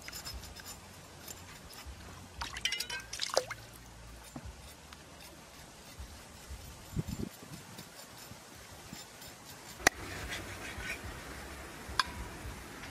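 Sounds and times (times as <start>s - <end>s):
water dripping and splashing: 2.4s - 4.0s.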